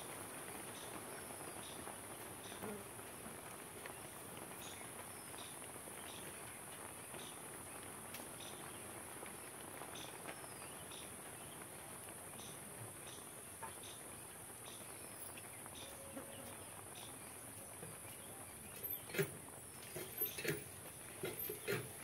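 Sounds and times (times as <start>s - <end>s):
chirring insects: 8.4s - 22.0s.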